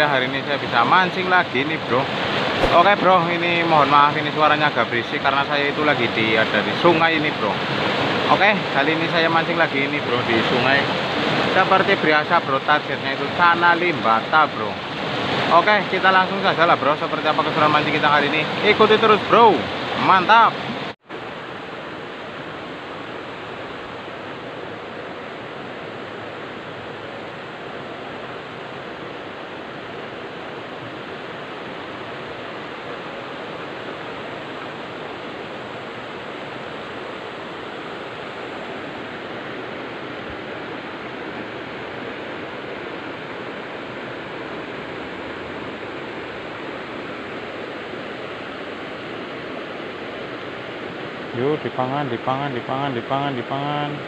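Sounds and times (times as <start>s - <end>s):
river rushing over stones: 0.0s - 54.0s.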